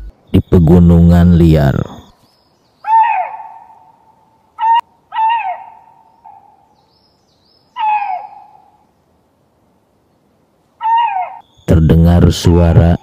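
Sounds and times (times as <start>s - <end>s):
faint high bird chirps: 0.0s - 8.8s, 10.8s - 13.0s
lynx mating calls: 2.8s - 4.0s, 4.6s - 6.6s, 7.7s - 8.7s, 10.8s - 13.0s.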